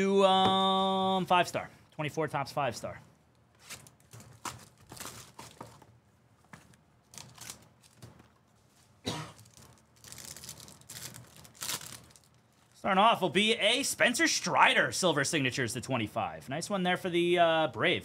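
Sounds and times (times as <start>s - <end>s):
cardboard rustling and clicking: 3.6s - 5.9s
foil crinkling and tearing: 3.7s - 5.6s, 7.1s - 8.0s, 9.4s - 12.8s.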